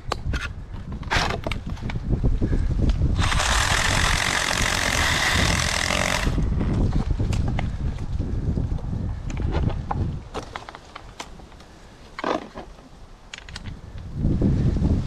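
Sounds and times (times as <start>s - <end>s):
wind noise on microphone: 0.0s - 10.6s, 13.3s - 15.0s
climbing gear clicks: 2.8s - 8.1s, 13.3s - 14.1s
battery pruning saw running: 3.2s - 6.4s.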